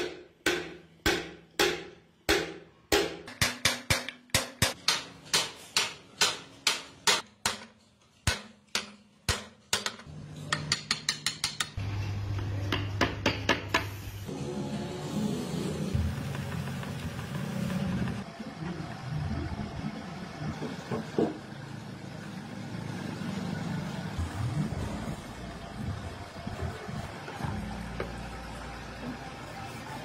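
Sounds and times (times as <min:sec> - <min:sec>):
hammer striking workpiece: 0:00.0 - 0:11.8, 0:12.7 - 0:13.9.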